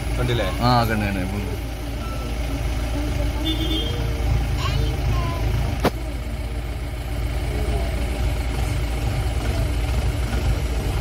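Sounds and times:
vehicle engine idling: 0.0s - 11.0s.

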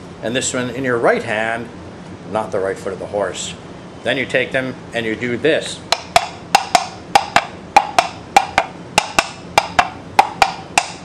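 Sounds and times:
coconut shells clopping: 5.9s - 11.0s.

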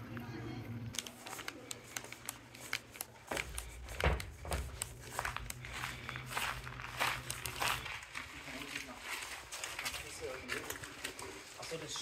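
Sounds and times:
footsteps crunching on gravel: 3.2s - 12.0s.

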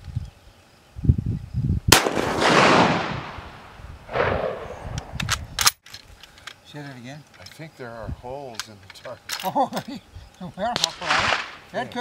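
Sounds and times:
rifle shot: 1.9s - 5.2s, 10.8s - 11.6s
rolling echo: 2.0s - 5.1s.

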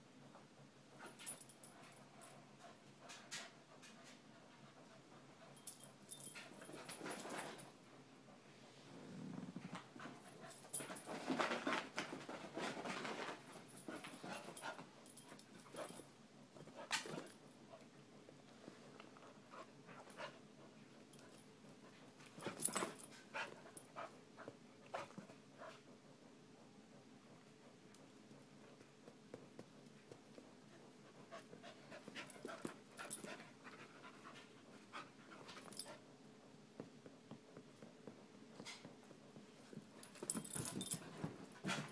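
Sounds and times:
dogs panting and scuffling: 0.3s - 41.9s
dog growling: 8.9s - 9.7s.

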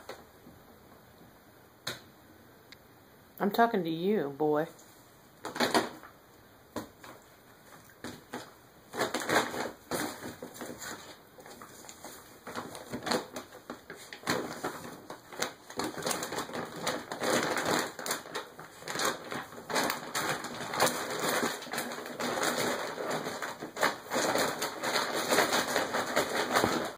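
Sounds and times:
dog food bag crinkling: 5.4s - 6.1s, 7.8s - 26.9s.

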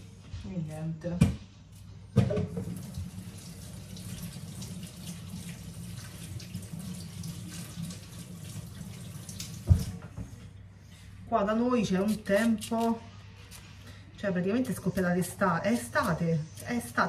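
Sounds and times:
tap running water into sink: 2.3s - 10.0s.

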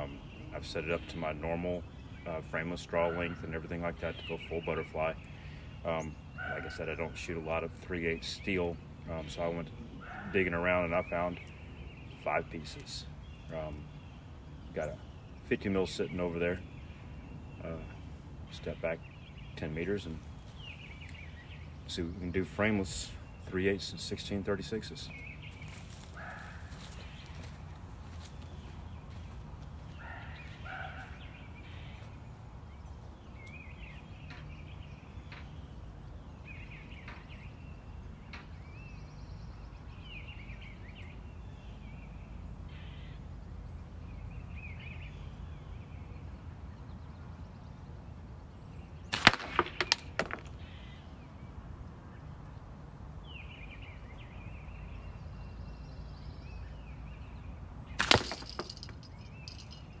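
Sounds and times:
birds chirping: 0.0s - 60.0s
balls striking catch box: 49.2s - 50.6s, 58.0s - 59.7s.

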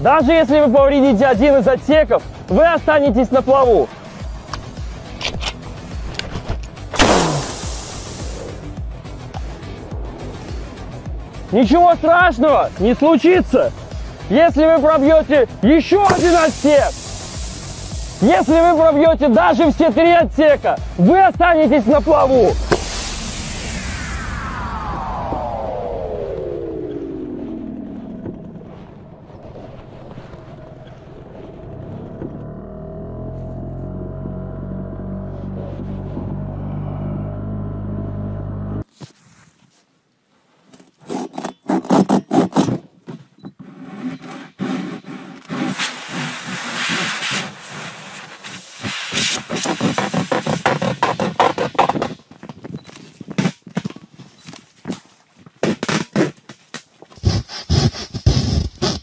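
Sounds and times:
wind on microphone: 22.4s - 31.6s
knife cutting plastic tube: 48.9s - 52.2s, 57.2s - 59.0s.

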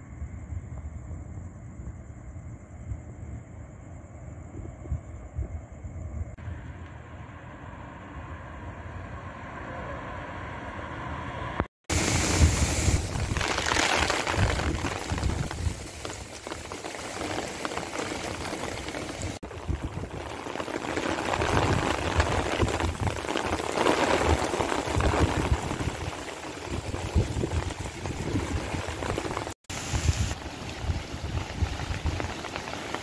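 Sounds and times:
rain on pavement: 11.9s - 33.0s
wind buffeting microphone: 11.9s - 33.0s.

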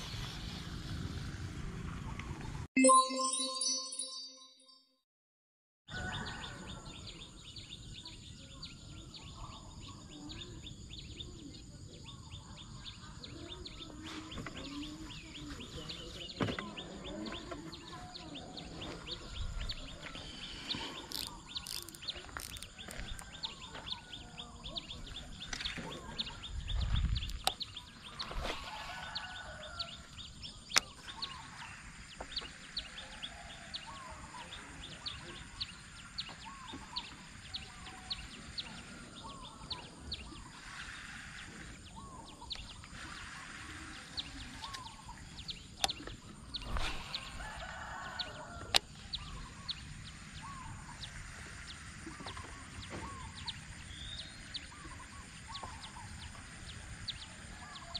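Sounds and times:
small birds chirping: 6.2s - 57.9s.

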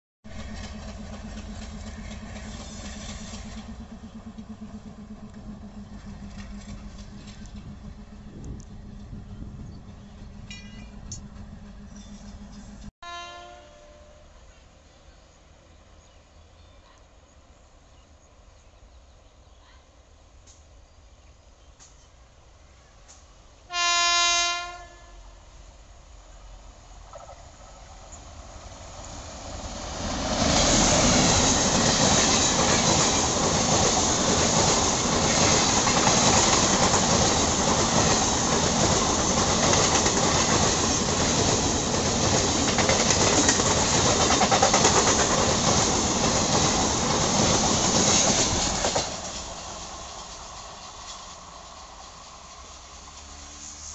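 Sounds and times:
train wheels on rails: 0.2s - 12.9s, 21.6s - 23.9s, 26.2s - 53.9s
train horn blast: 13.0s - 14.4s, 23.7s - 25.4s.

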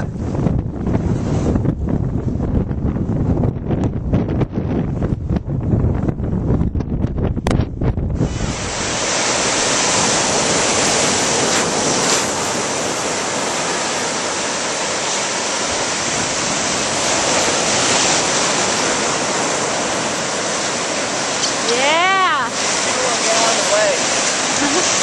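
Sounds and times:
wind buffeting microphone: 0.0s - 25.0s
surf breaking: 7.5s - 25.0s.

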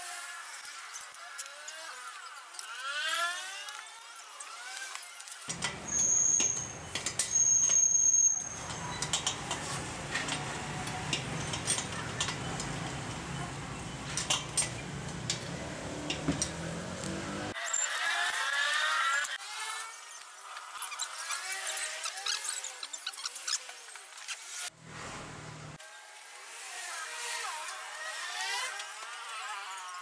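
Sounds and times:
high-pitched squeaks: 0.4s - 14.9s, 17.5s - 24.6s
spanner clinking on metal: 5.5s - 13.2s, 14.0s - 16.8s.

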